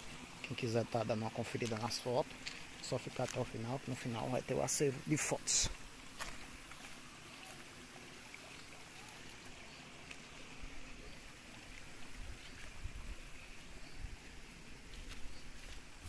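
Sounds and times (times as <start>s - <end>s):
creek trickling: 0.0s - 16.0s.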